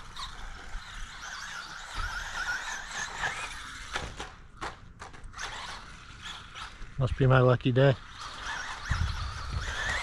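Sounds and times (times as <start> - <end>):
electric motor whining: 0.0 - 4.2, 8.0 - 10.0.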